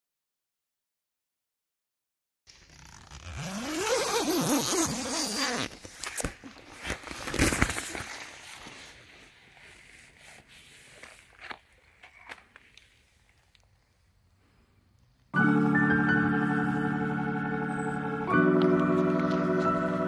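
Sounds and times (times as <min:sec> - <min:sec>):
tent zipper rasping: 0:02.5 - 0:05.9
fabric rustling: 0:02.5 - 0:13.8.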